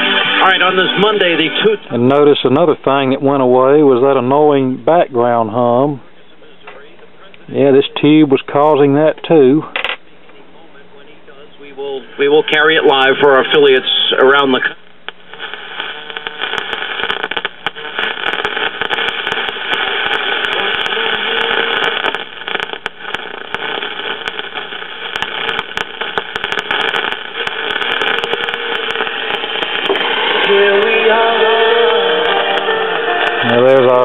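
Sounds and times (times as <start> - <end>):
faint radio station audio: 0.0 - 34.0
radio static hiss: 0.0 - 34.0
crackling clicks: 14.5 - 34.0.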